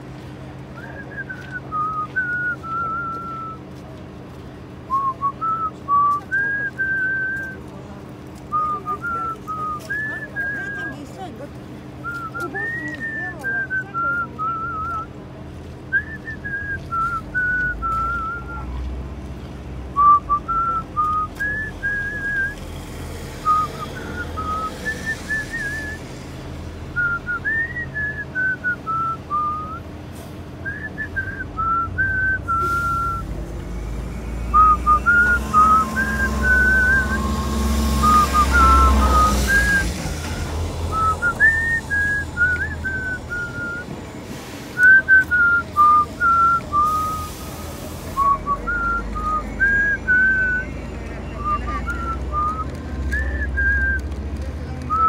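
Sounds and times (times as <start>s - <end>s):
person whistling a slow tune: 0.8s - 3.6s, 4.9s - 7.6s, 8.5s - 11.0s, 12.0s - 15.1s, 15.9s - 18.7s, 20.0s - 22.6s, 23.4s - 26.0s, 27.0s - 29.8s, 30.6s - 33.4s, 34.5s - 44.0s, 44.8s - 54.1s.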